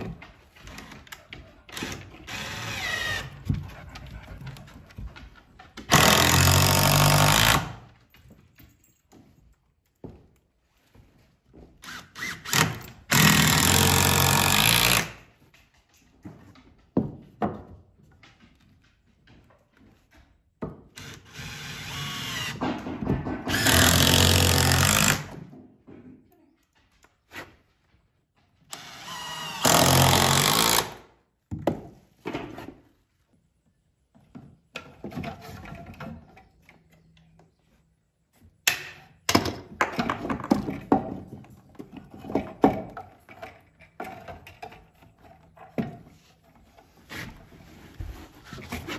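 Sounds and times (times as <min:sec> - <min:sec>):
handling knocks and clatter: 0:07.8 - 0:11.8, 0:22.6 - 0:23.7, 0:34.0 - 0:37.6, 0:38.5 - 0:48.9
cordless drill driving fasteners: 0:11.8 - 0:15.2, 0:21.0 - 0:22.6, 0:23.5 - 0:25.3, 0:28.7 - 0:31.0.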